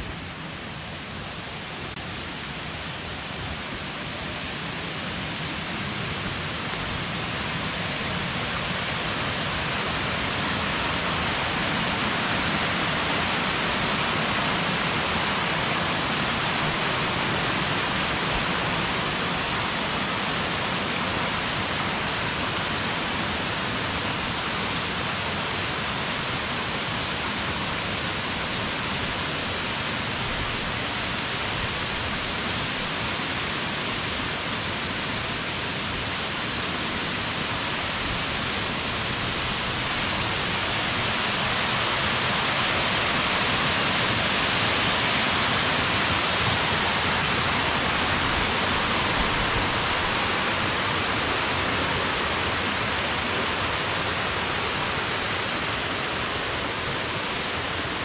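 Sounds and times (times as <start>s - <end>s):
waterfall rushing: 28.7s - 58.0s.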